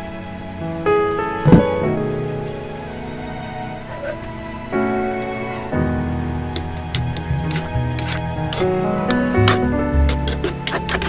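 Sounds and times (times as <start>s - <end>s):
sustained chord music: 0.0s - 10.6s
sauce sizzling: 4.3s - 11.0s.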